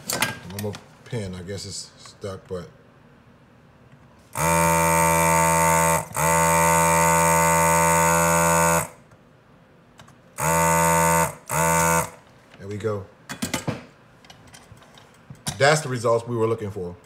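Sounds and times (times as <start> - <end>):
desoldering vacuum pump buzzing: 4.3 - 9.1, 10.4 - 12.3.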